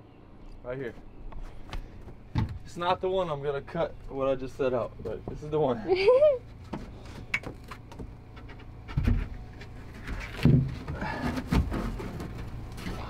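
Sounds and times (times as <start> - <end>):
panel thudding on deck: 2.2 - 2.7.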